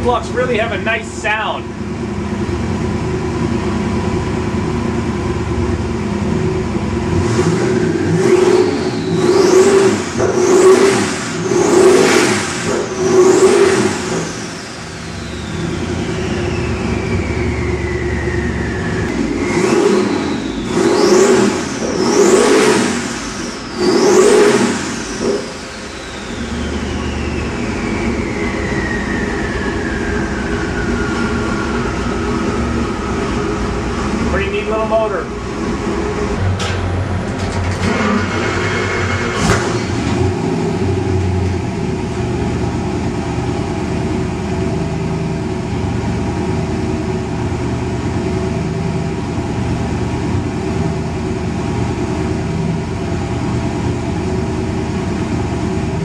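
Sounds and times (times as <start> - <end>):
engine idling and revving: 0.0 - 56.0
turbocharger whistle: 7.1 - 35.7, 37.7 - 42.1.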